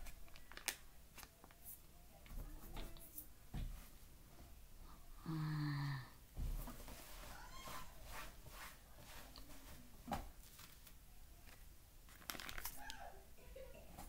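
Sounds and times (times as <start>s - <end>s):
faint clicks and crunches: 0.0s - 1.8s, 10.4s - 13.0s
paper bag crinkling: 0.0s - 1.8s, 12.1s - 13.0s.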